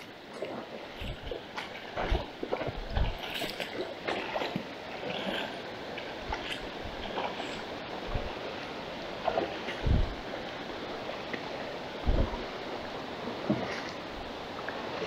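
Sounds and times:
river water rushing: 0.0 - 15.0
splashy thumps of wading: 1.0 - 5.5, 6.2 - 8.4, 9.2 - 10.2, 12.0 - 12.6.

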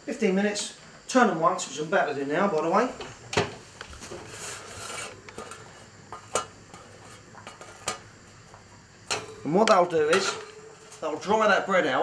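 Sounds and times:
baking tray scraping on oven rack: 4.0 - 8.0.

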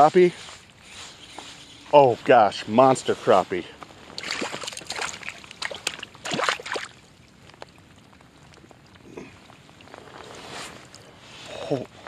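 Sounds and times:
faint water sounds: 0.0 - 12.0
fish thrashing and splashing: 4.1 - 8.8.

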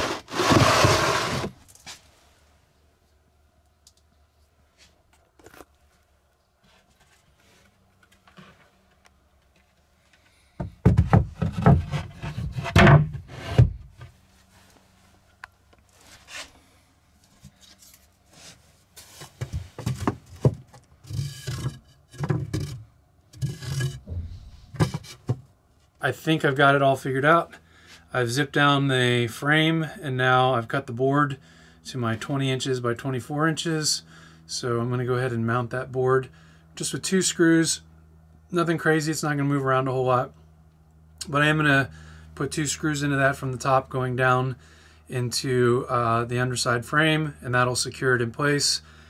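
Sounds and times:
wood knocking and scraping: 0.0 - 1.6, 10.6 - 14.1, 23.4 - 25.5.

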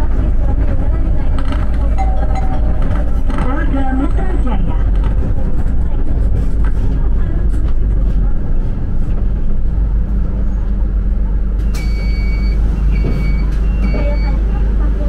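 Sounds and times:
bus engine rumble: 0.0 - 15.0
electronic beeps: 2.0 - 3.1.

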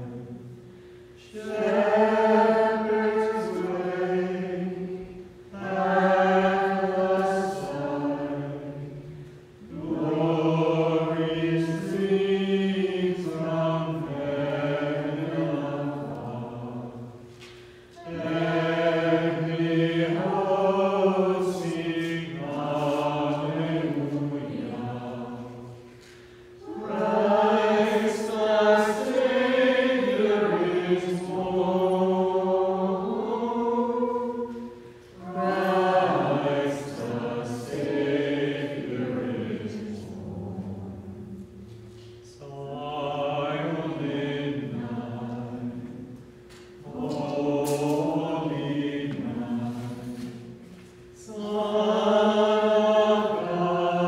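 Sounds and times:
group singing a hymn: 0.0 - 54.0.

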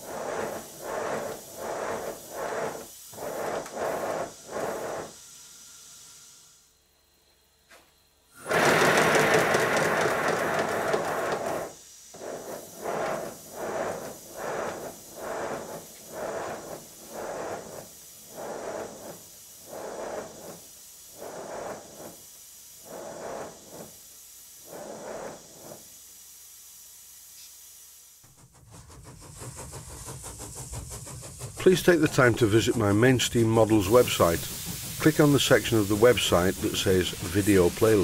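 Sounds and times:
loud steam hiss: 0.0 - 7.1, 8.3 - 38.0
steam engine exhaust beats: 0.0 - 7.1, 8.4 - 38.0.

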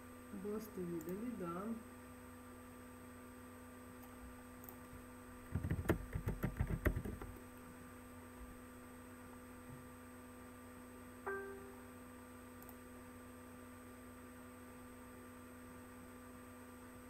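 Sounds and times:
electrical hum: 0.0 - 17.0
keyboard typing: 5.5 - 7.4.

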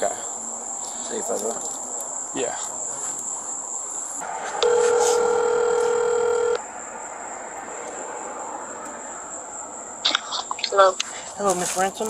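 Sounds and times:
telephone ringback tone: 4.5 - 6.6.

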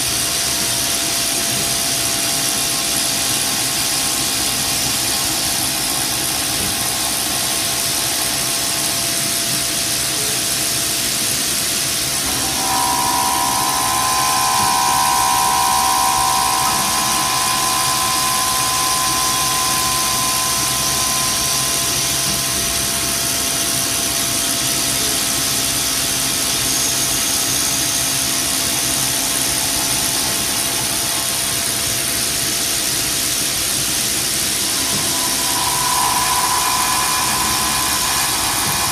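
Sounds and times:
whining tone: 1.4 - 10.4, 11.7 - 38.9
milling machine cutting: 12.0 - 24.2, 27.5 - 38.9.

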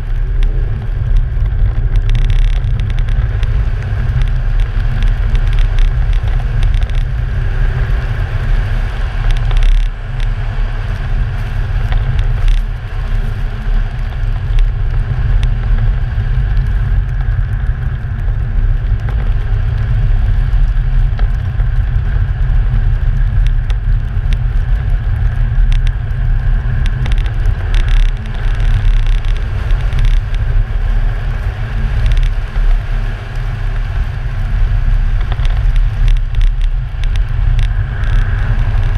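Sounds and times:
low rumble of engine and tyres: 0.0 - 38.9
wind buffeting microphone: 0.0 - 38.9
faint ticks: 0.1 - 7.2, 9.2 - 10.3, 10.9 - 15.9, 22.9 - 33.9, 35.1 - 38.9.

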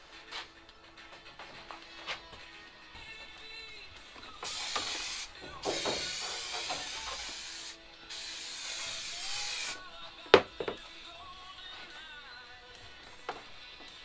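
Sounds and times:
aerosol can hissing: 4.4 - 9.9.

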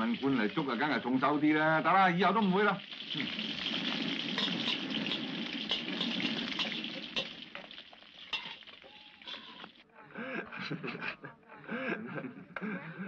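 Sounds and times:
rice sizzling in a wok: 0.0 - 9.8
metal utensil scraping wok: 3.8 - 9.8.

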